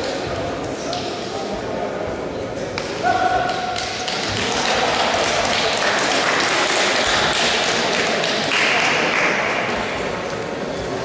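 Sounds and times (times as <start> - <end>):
spectators cheering and clapping: 3.0 - 9.8.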